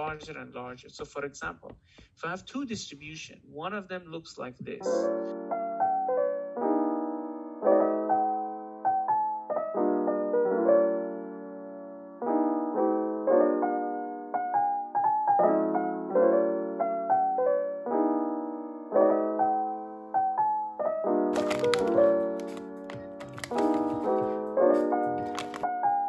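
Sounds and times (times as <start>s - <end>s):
solo piano music: 4.8s - 26.0s.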